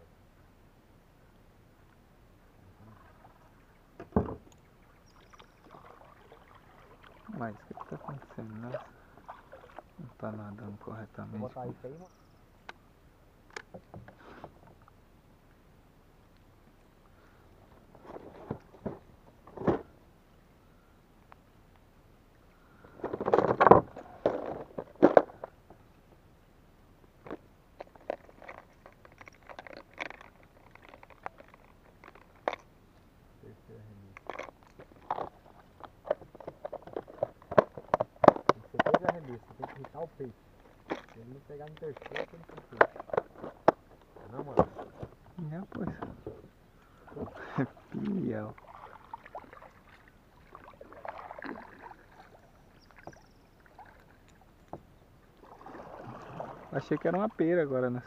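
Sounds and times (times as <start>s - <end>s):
paddle swishing through water: 2.8s - 3.9s, 4.5s - 10.2s, 46.3s - 57.4s
water splash: 4.9s - 10.0s, 47.1s - 54.4s, 55.4s - 57.4s
plastic lures clicking and rattling: 27.8s - 32.7s, 34.2s - 39.1s.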